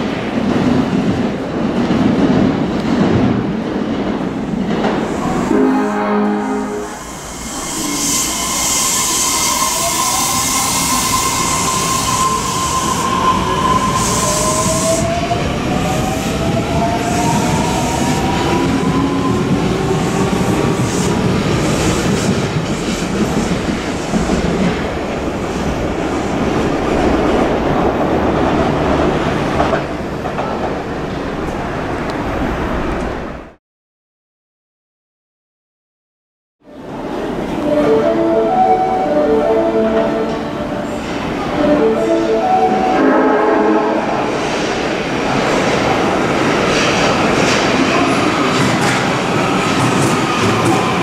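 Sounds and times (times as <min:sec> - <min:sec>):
train inverter tones rising: 0:04.9 - 0:20.0.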